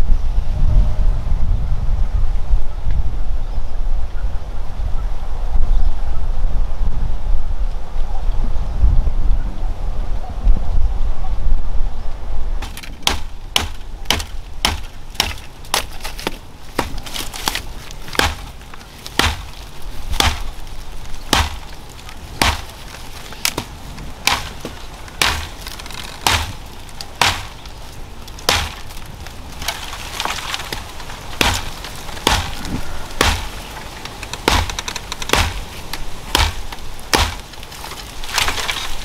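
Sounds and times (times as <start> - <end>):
blade chopping wood: 12.6 - 20.6, 21.2 - 39.0
wood splintering crackle: 12.6 - 39.0.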